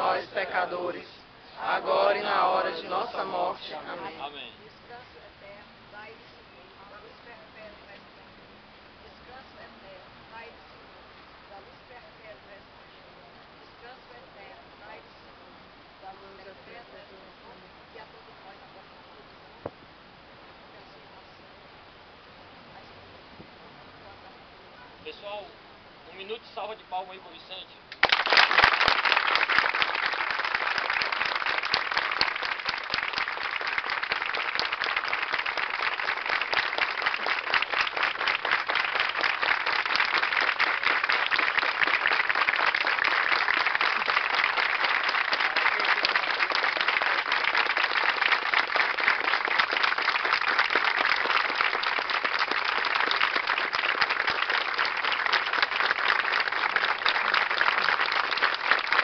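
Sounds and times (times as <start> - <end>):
crowd applause: 0.0 - 0.4, 28.0 - 59.0.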